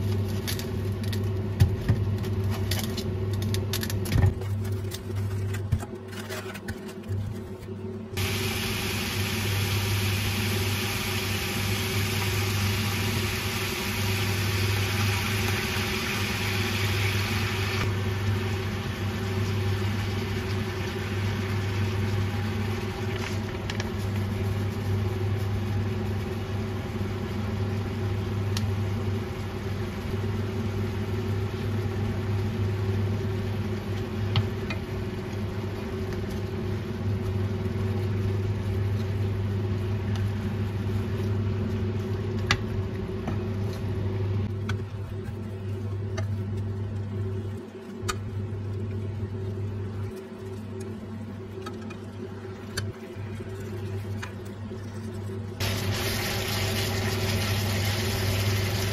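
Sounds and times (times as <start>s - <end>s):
electrical hum of appliance: 0.0s - 58.9s.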